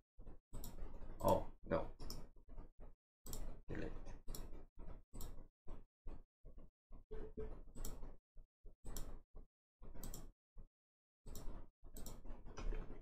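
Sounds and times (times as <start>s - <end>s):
computer mouse clicks: 0.6s - 1.4s, 3.3s - 3.6s, 7.8s - 8.1s, 8.8s - 9.2s, 10.0s - 10.3s, 11.3s - 12.8s.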